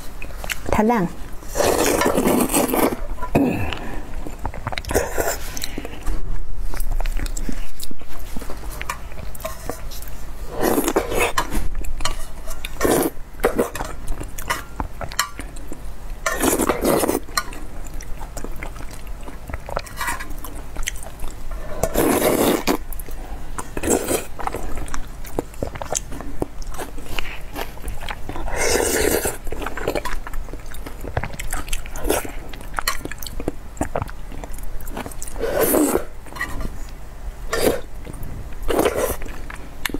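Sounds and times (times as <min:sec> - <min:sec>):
person chewing: 0:00.1 - 0:00.7, 0:01.4 - 0:39.9
person slurping soup: 0:01.4 - 0:06.0, 0:10.4 - 0:11.4, 0:12.7 - 0:13.8, 0:16.3 - 0:17.3, 0:21.6 - 0:22.8, 0:28.4 - 0:29.5, 0:35.3 - 0:36.2, 0:37.5 - 0:37.9, 0:38.7 - 0:39.3.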